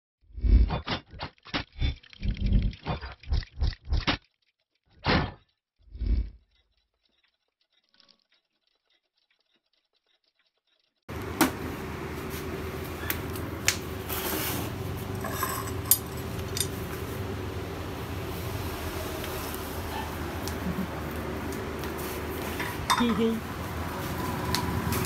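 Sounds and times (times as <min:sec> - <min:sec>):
steady hum with room noise: 0:11.1 - 0:25.0
metal bolts clicking and clinking: 0:15.1 - 0:16.9, 0:22.6 - 0:23.2.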